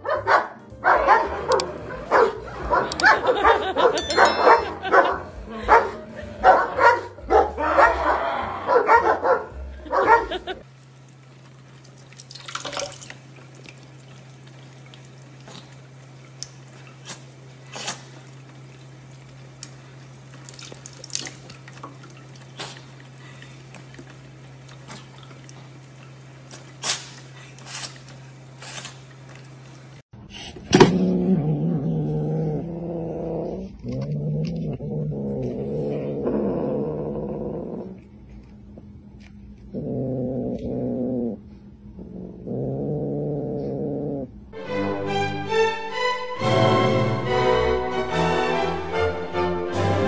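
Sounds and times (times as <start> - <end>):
cat growling: 6.7 - 10.6, 30.8 - 38.2, 39.5 - 44.4.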